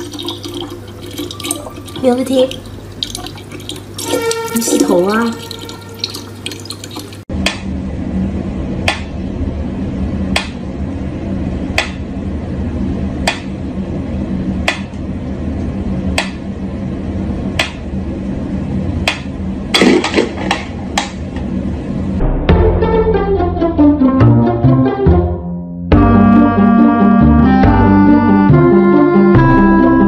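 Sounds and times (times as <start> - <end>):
steady low hum: 0.0 - 24.1.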